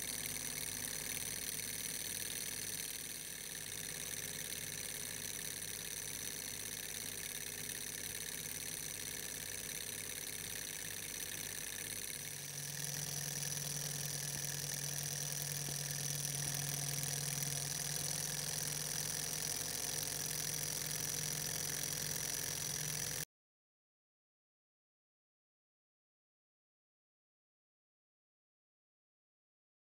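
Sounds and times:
small engine mechanical ticking: 0.0 - 23.2
steady low hum: 0.0 - 23.2.

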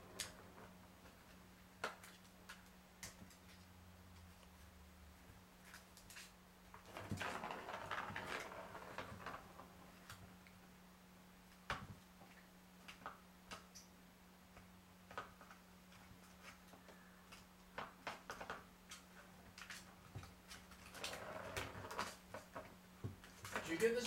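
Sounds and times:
ball rattling in toy track: 6.9 - 9.8.

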